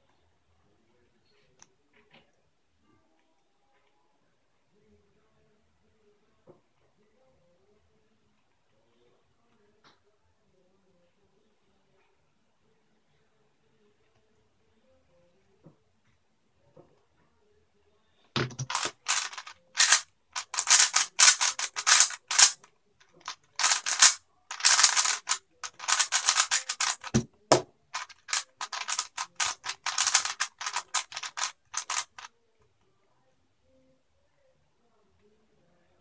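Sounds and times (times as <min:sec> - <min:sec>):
puzzle cube layers clicking: 0:18.4 - 0:22.6, 0:23.2 - 0:32.3.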